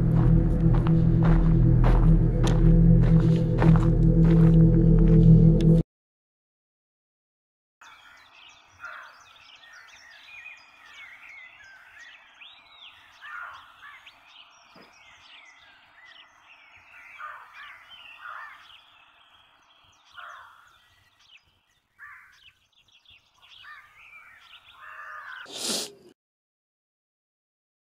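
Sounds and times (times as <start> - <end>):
birds chirping and whistling: 7.8 - 21.5.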